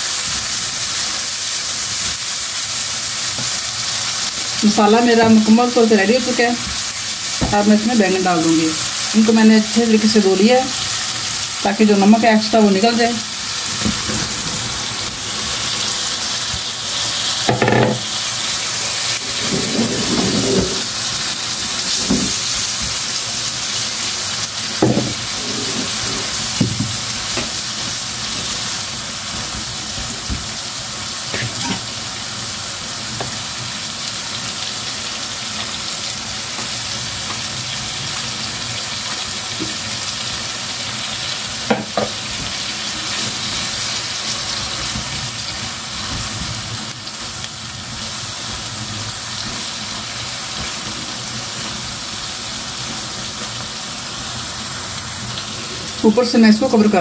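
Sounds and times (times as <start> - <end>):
vegetables sizzling in a wok: 0.0 - 57.0
spatula scraping a pan: 16.9 - 21.0, 25.1 - 26.4.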